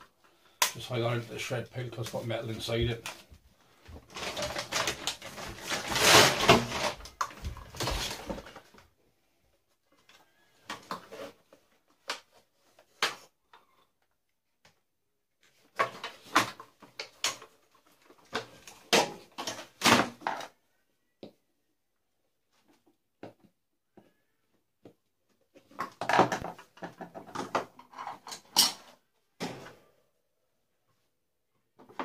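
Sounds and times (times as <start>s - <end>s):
plastic parts clattering: 4.0s - 8.8s, 15.4s - 20.6s, 25.6s - 29.8s.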